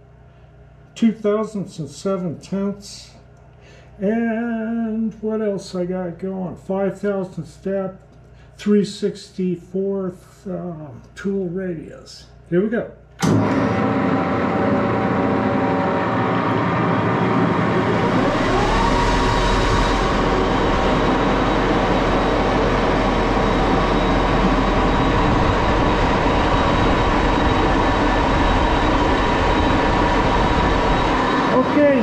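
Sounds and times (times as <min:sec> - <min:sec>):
lathe spindle whine and hum: 0:13.2 - 0:32.0.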